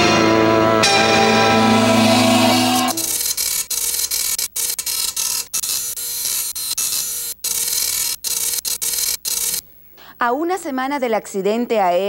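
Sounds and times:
music chord: 0.0s - 3.0s
mechanical typing clatter: 2.8s - 9.6s.

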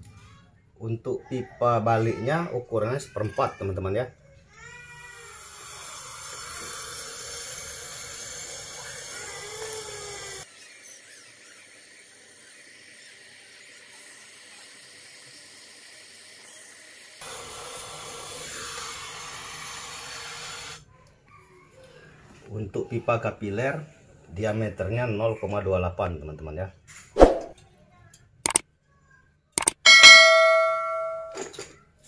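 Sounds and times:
torch flame hissing: 5.3s - 10.5s, 11.7s - 20.8s.

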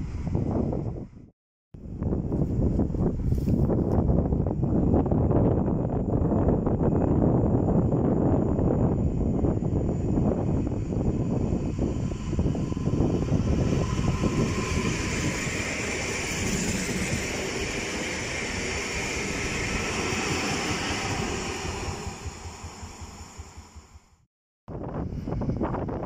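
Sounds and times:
train wheel and rail noise: 2.4s - 24.2s
electric train whine: 4.4s - 24.3s.

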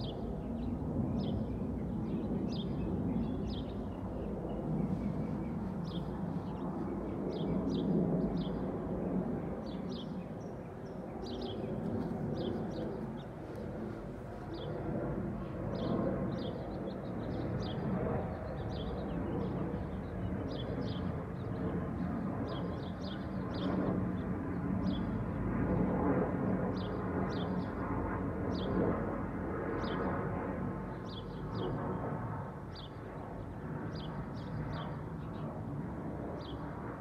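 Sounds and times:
small birds chirping: 0.0s - 14.9s
distant city traffic rumble: 1.2s - 17.0s.

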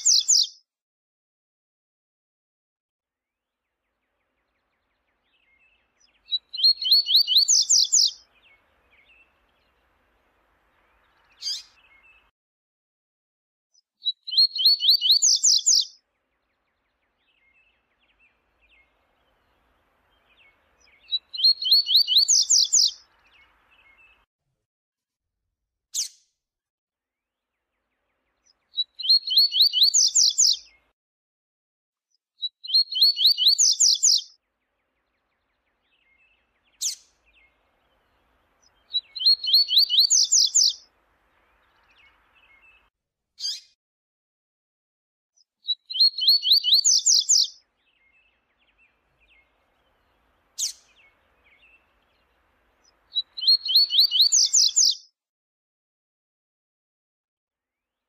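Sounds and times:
bird singing rapid high notes: 0.0s - 0.5s, 14.1s - 15.9s, 20.1s - 24.2s, 32.6s - 34.3s, 38.6s - 40.8s, 45.7s - 52.3s, 52.9s - 55.0s.

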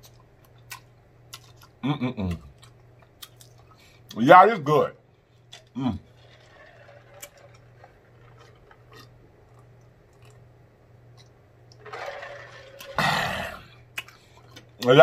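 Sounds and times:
man gulping water: 12.8s - 14.7s.

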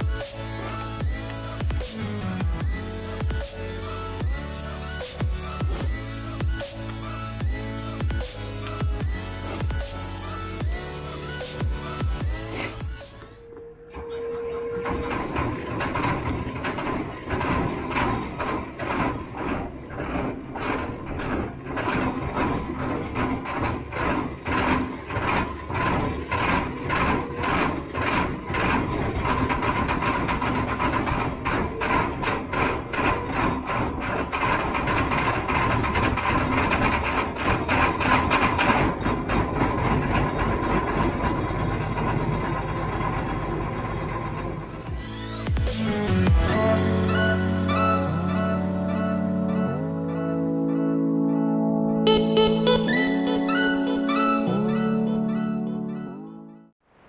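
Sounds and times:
diesel engine running rough: 15.1s - 47.8s.

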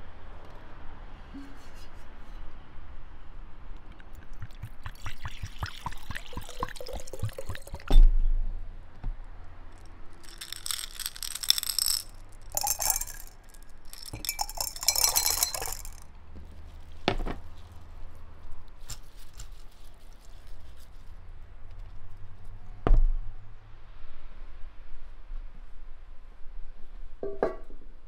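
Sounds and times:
beads clinking against glass: 4.4s - 7.9s, 10.2s - 16.0s.

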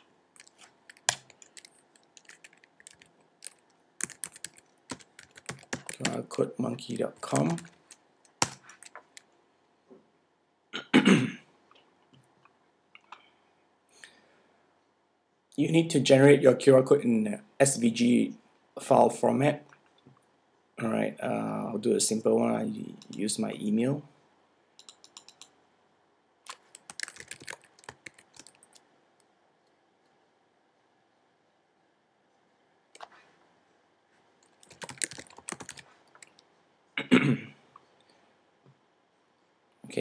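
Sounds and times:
typing on computer keyboard: 0.4s - 6.2s, 7.2s - 9.3s, 24.8s - 25.6s, 26.5s - 28.8s, 34.4s - 36.4s
man clearing throat: 10.8s - 11.4s, 37.0s - 37.6s.

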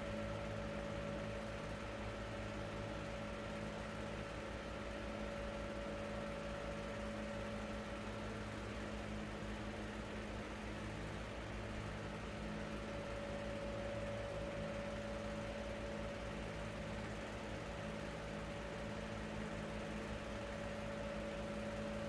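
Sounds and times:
machine hum: 5.0s - 22.0s.

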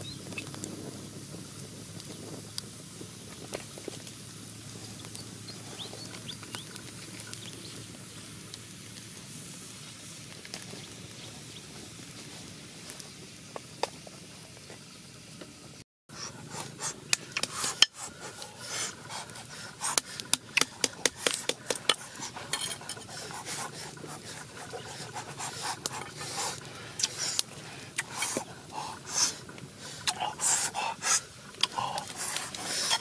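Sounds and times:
wood fire hissing and crackling: 0.0s - 33.0s.

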